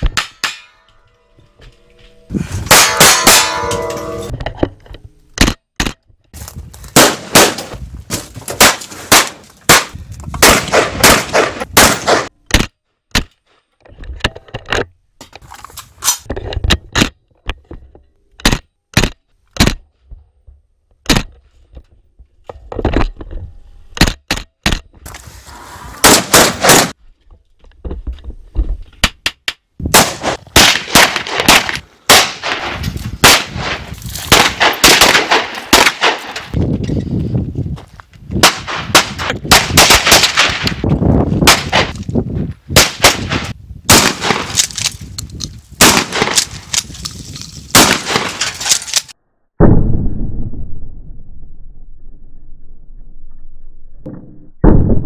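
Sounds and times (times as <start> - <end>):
rifle shots: 7.0 - 7.8, 8.6 - 12.3, 26.0 - 27.0, 29.9 - 36.5, 38.4 - 40.8, 42.8 - 44.7, 45.8 - 46.5, 47.7 - 48.5.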